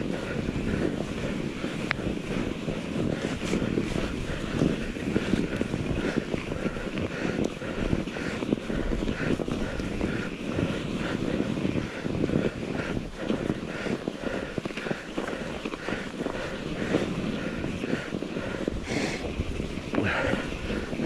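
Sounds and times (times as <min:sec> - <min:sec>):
bike tyres rumbling over snow: 0:00.0 - 0:21.0
wind buffeting microphone: 0:00.0 - 0:21.0.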